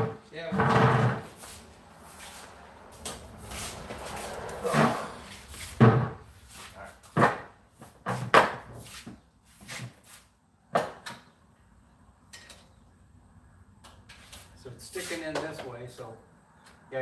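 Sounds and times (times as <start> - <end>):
knocks and thumps: 5.8 - 6.3, 7.1 - 8.7.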